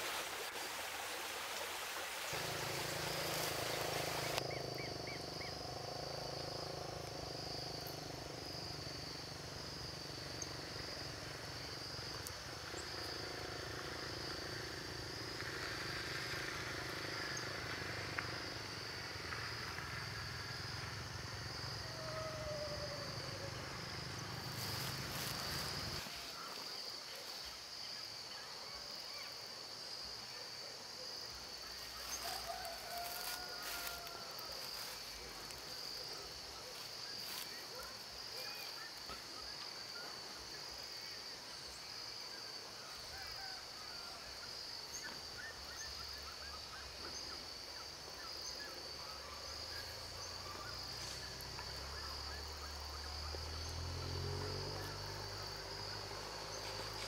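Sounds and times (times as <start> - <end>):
running water: 0.0 - 4.4
insects chirping: 0.0 - 57.0.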